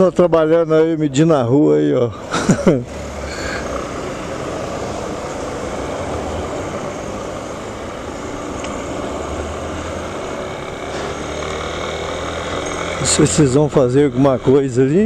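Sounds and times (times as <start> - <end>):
wind and road noise: 0.0 - 15.0
motorcycle engine running: 3.3 - 15.0.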